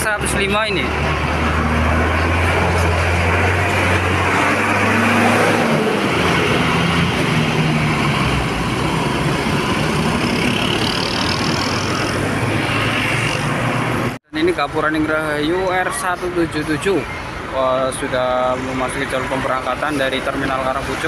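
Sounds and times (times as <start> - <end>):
diesel bus engine drone: 0.0 - 14.8.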